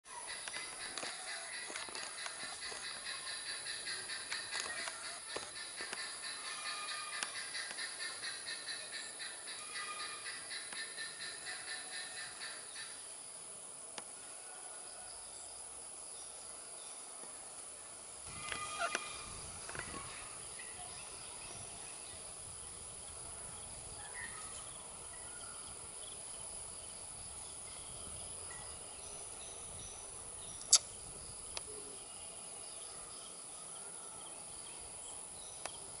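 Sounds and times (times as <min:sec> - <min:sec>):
distant bird calls: 0:00.1 - 0:13.0, 0:18.3 - 0:26.2
high-pitched insect drone: 0:00.4 - 0:13.0, 0:18.2 - 0:21.3.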